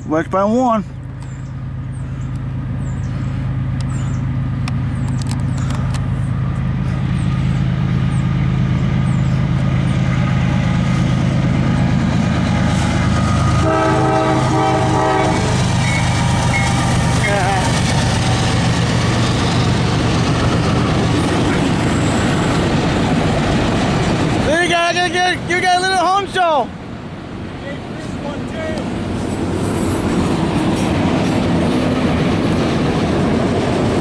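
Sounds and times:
diesel locomotive engine rumble: 0:00.0 - 0:34.0
locomotive horn: 0:12.7 - 0:16.9.

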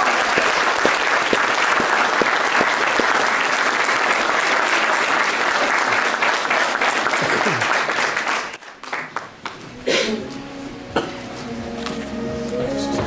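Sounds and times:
nearby hand claps: 0:00.0 - 0:04.2
crowd applauding: 0:00.0 - 0:09.6.

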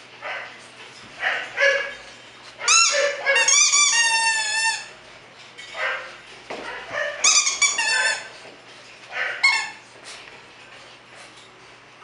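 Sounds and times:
squeaky dog toy squeaking: 0:02.7 - 0:04.9, 0:07.2 - 0:08.3, 0:09.4 - 0:09.8.

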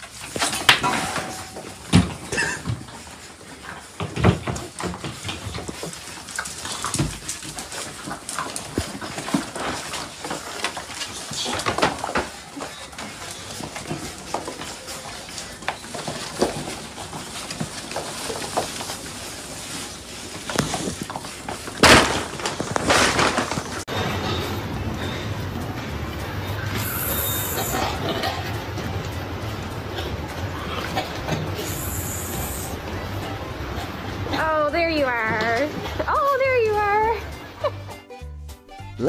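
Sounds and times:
paws scrabbling on tiled floor: 0:01.5 - 0:33.0
puppies yapping: 0:24.6 - 0:34.2.

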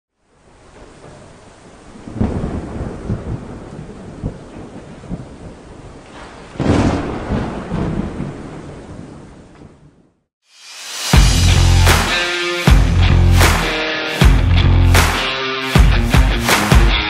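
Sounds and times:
rain hissing: 0:00.2 - 0:04.2, 0:10.4 - 0:15.9
thunder rumbling: 0:00.8 - 0:10.1.

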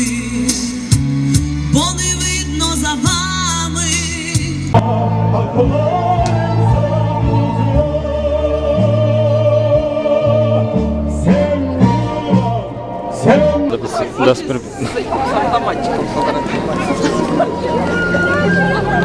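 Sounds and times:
person singing slow song: 0:00.0 - 0:13.8
steady bass notes: 0:00.0 - 0:19.0.

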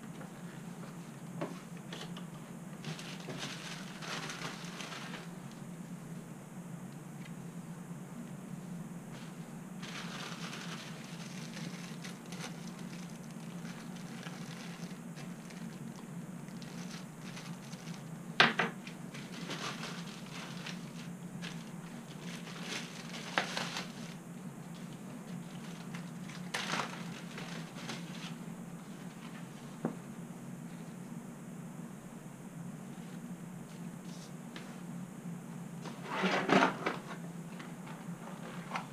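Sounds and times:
steady low hum: 0:00.0 - 0:38.9
plastic bag crinkling: 0:02.8 - 0:05.5, 0:09.8 - 0:18.2, 0:19.1 - 0:24.2, 0:24.8 - 0:28.4.

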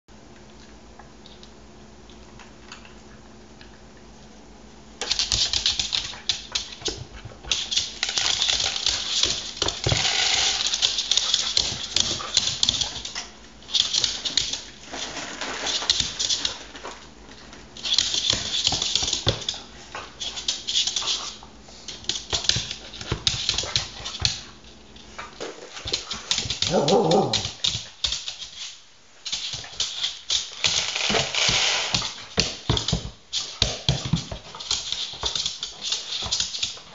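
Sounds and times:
dog whining: 0:26.7 - 0:27.6.

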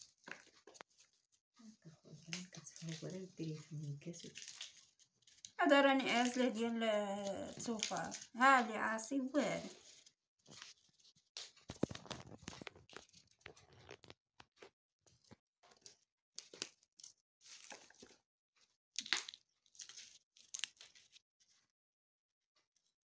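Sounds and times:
pods rustling: 0:00.0 - 0:14.1
bean pods snapping and tearing: 0:04.2 - 0:05.6, 0:07.5 - 0:08.4, 0:19.0 - 0:21.1.

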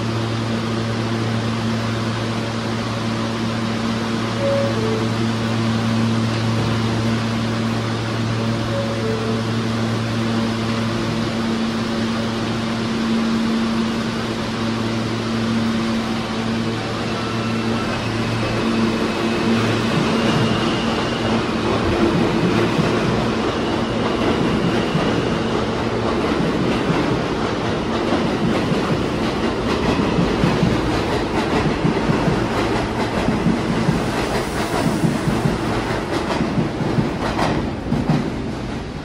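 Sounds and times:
subway traction motors humming: 0:00.0 - 0:39.0
train wheels clattering: 0:17.8 - 0:39.0.

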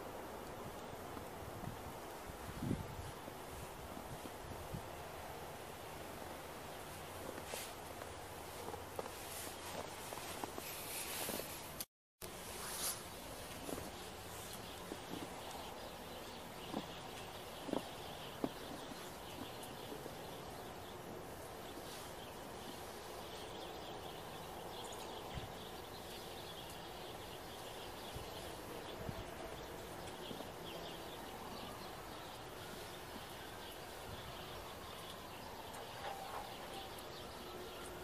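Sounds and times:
steady outdoor hiss: 0:00.0 - 0:38.0
footsteps crunching in snow: 0:06.8 - 0:20.0.

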